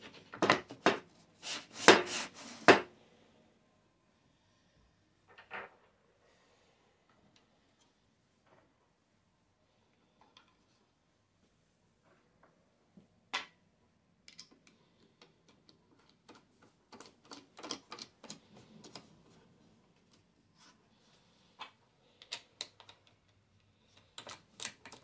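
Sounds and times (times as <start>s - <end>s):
small parts clicking and tapping: 14.2s - 19.4s, 21.6s - 25.0s.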